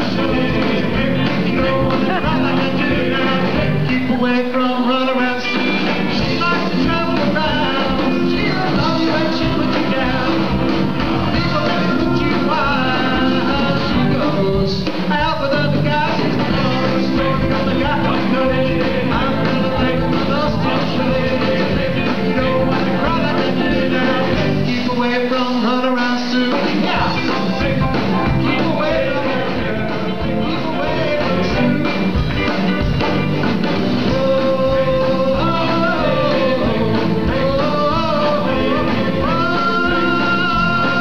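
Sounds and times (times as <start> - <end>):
drums: 0.0 - 41.0
electric guitar: 0.0 - 41.0
lead and backing vocals: 0.0 - 41.0
rock and roll band playing: 0.0 - 41.0.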